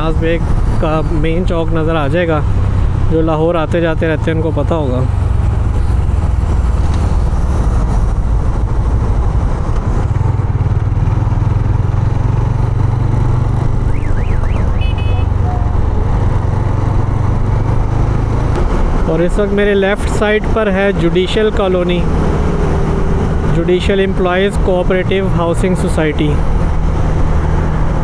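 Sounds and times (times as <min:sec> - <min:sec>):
high beeps: 0:13.9 - 0:15.3.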